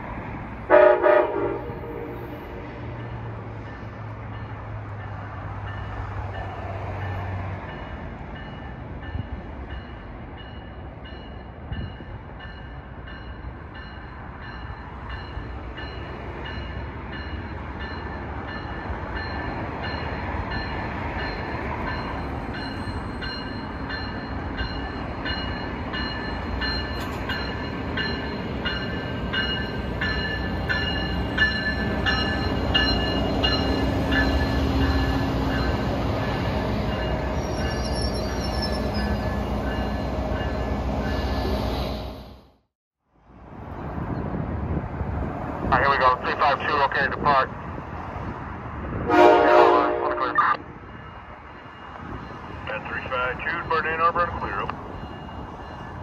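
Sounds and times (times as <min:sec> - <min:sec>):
train rumbling: 0:00.0 - 0:42.6, 0:43.2 - 0:56.0
locomotive bell ringing: 0:07.7 - 0:41.5, 0:50.2 - 0:56.0.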